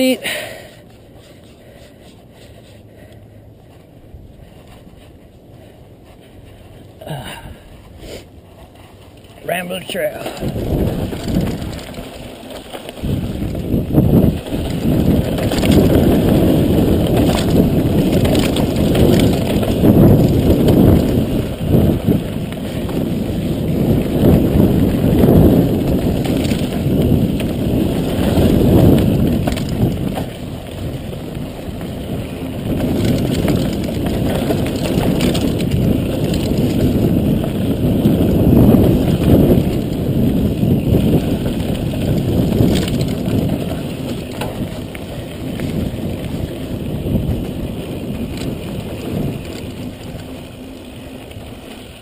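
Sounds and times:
bike tyres crunching and rattling: 0.0s - 52.0s
wind rumble on microphone: 0.9s - 52.0s
bike knocking over bumps: 10.2s - 50.3s.

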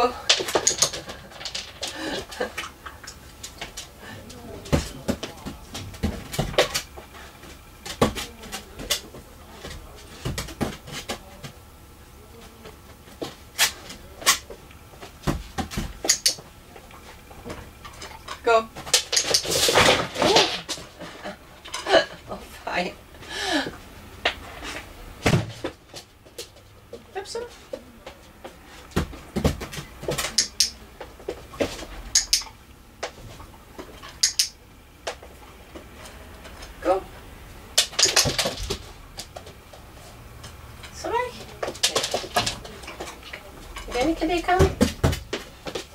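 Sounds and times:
sharp high clicks: 16.0s - 16.4s, 32.2s - 32.6s, 34.2s - 34.6s.

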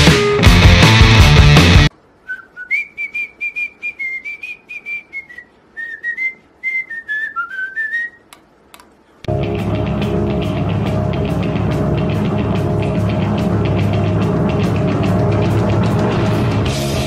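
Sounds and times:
loud rock music: 0.0s - 1.9s, 9.3s - 17.0s
parrot whistling a tune: 2.3s - 8.3s.

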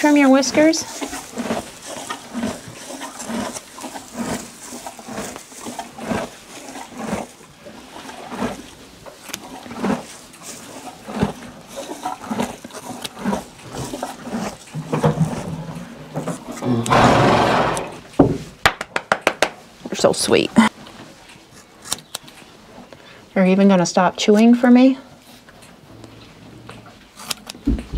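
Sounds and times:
horse chewing hay: 0.0s - 18.2s, 20.7s - 22.9s.

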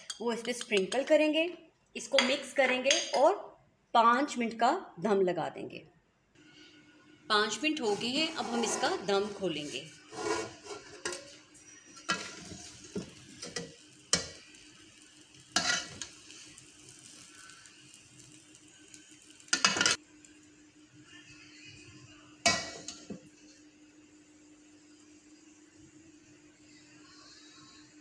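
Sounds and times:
metal spatula scraping a pot: 7.5s - 14.4s, 15.6s - 16.6s.

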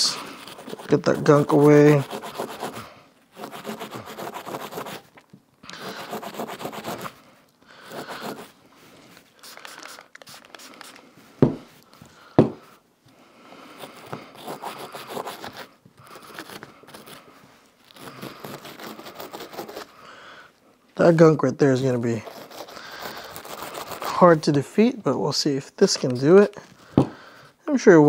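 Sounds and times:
brush scrubbing metal part: 0.0s - 2.8s
sharp knocks: 12.4s - 12.6s.

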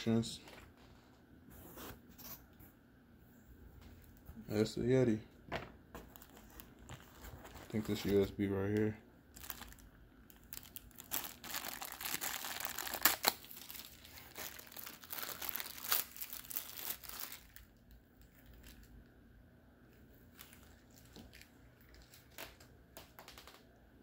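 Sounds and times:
plastic bag crinkling: 6.0s - 19.0s, 20.2s - 23.6s.

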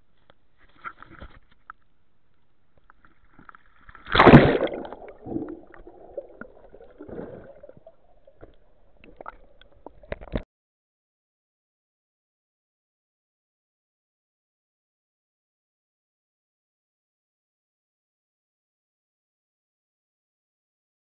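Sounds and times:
underwater sloshing and gurgling: 2.9s - 10.4s
water splashing: 3.9s - 10.4s.

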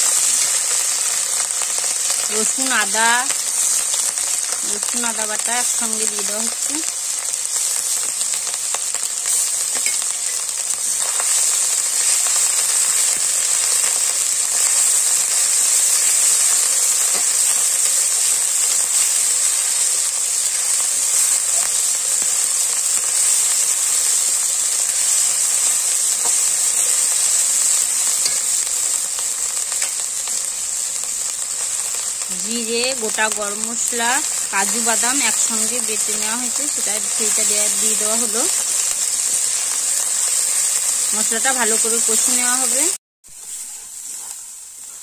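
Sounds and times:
paste sizzling in hot oil: 0.0s - 45.0s.

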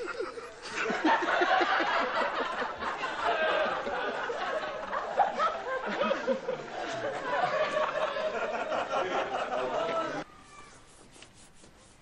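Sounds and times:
person laughing and snickering: 0.0s - 1.0s.

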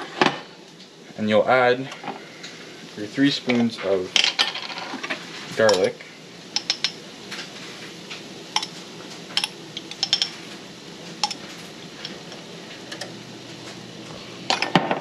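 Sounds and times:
faint steady hiss: 0.0s - 15.0s
spoon tapping in frying pan: 6.6s - 7.0s.

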